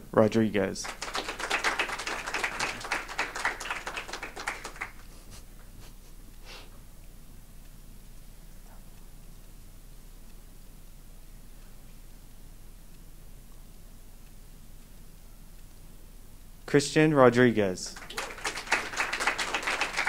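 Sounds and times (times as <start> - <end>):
audience applauding: 0.8 - 5.1, 17.9 - 20.0.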